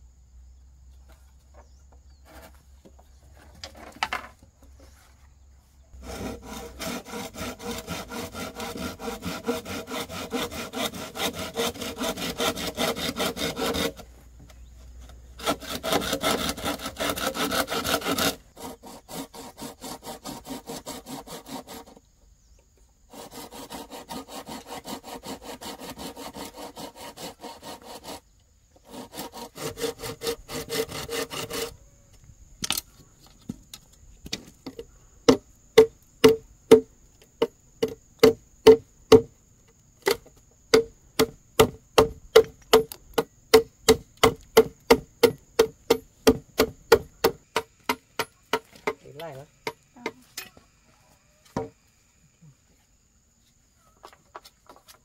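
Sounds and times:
handsaw cutting bamboo: 0:06.0 - 0:14.1, 0:15.4 - 0:22.0, 0:23.1 - 0:31.8.

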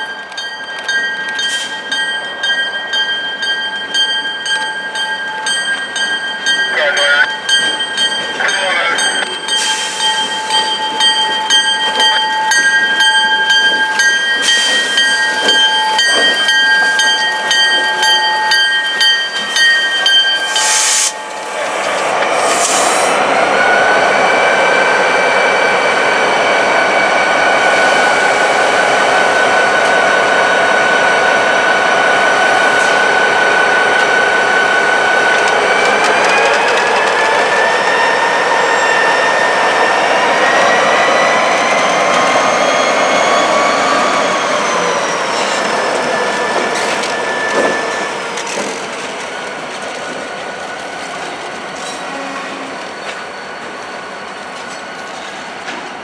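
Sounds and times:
freight train rolling past: 0:00.0 - 0:56.0
train clicks: 0:07.5 - 0:23.0, 0:33.9 - 0:38.2, 0:44.5 - 0:52.0.

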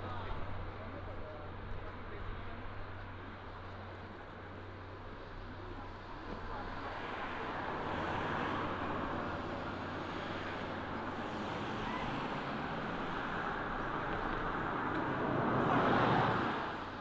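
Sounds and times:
road noise: 0:00.0 - 0:17.0
vehicle engine rumble: 0:00.0 - 0:17.0.

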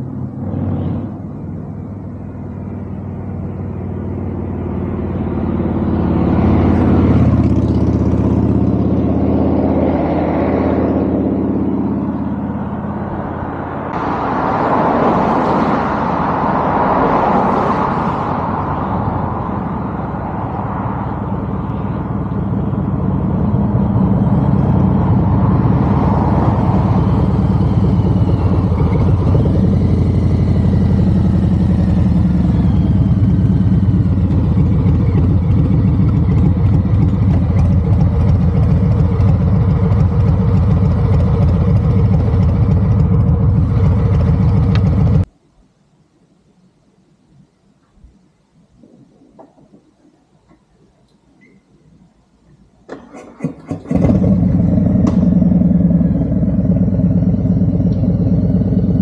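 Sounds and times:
car passing: 0:00.0 - 0:45.3, 0:48.8 - 0:59.0
motorcycle engine idling: 0:26.9 - 0:45.3.

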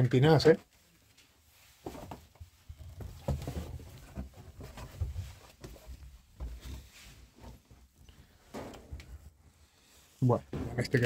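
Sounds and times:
scuffs and rustling: 0:00.4 - 0:11.0
footsteps down stairs: 0:01.8 - 0:07.8.

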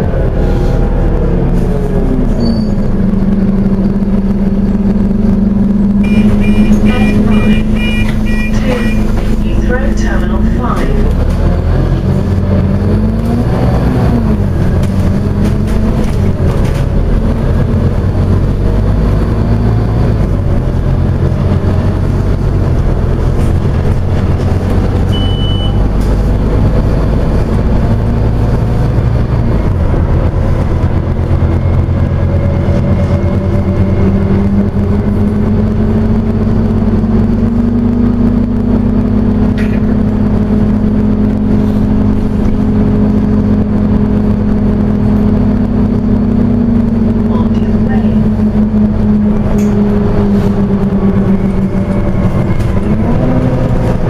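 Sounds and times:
bus diesel engine: 0:00.0 - 0:54.0
short high beep: 0:06.0 - 0:09.1, 0:25.1 - 0:25.9.

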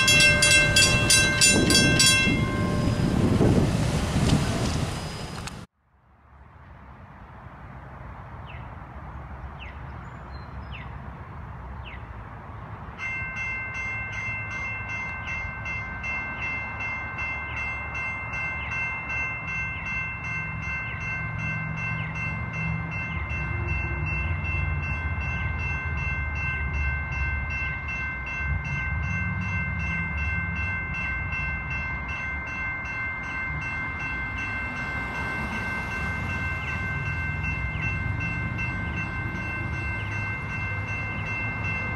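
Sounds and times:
railway crossing bell ringing: 0:00.0 - 0:05.6, 0:12.9 - 0:41.9.

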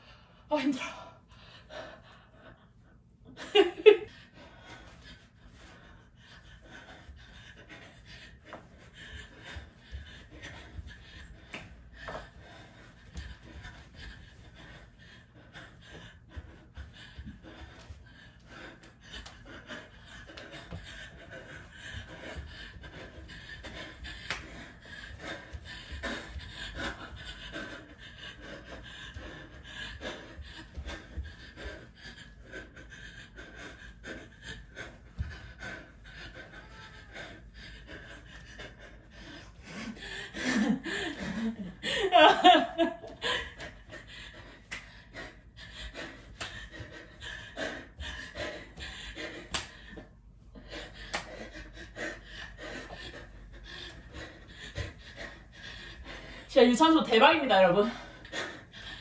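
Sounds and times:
woman panting heavily: 0:00.0 - 0:59.0
woman laughing loudly: 0:03.4 - 0:04.2, 0:40.4 - 0:43.6.

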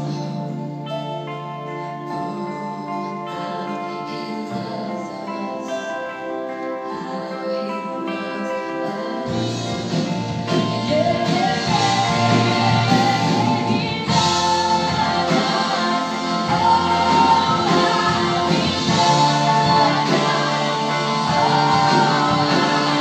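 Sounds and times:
person singing lead: 0:00.0 - 0:23.0
worship band with electric guitars: 0:00.0 - 0:23.0.

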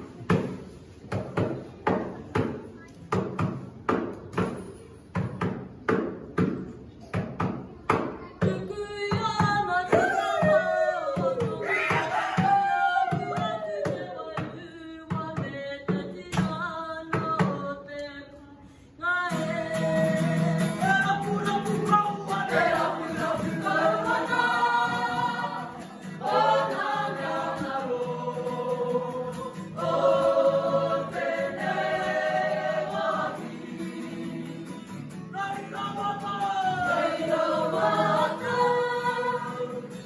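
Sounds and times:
acoustic guitar: 0:00.0 - 0:40.0
group singing: 0:09.4 - 0:14.6, 0:19.3 - 0:40.0.

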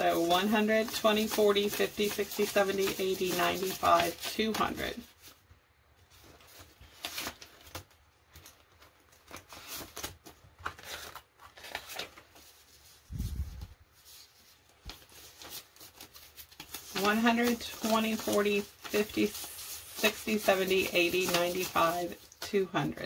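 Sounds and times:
banknotes rustling and flicking: 0:00.0 - 0:23.0.

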